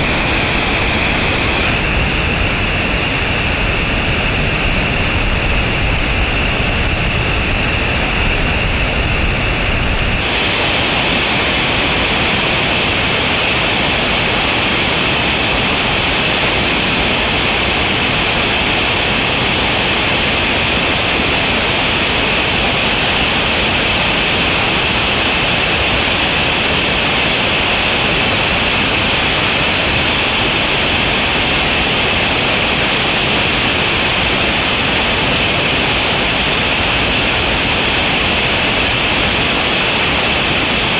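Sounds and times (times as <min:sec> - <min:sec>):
creek rushing over rapids: 0:00.0 - 0:01.8, 0:10.2 - 0:40.9.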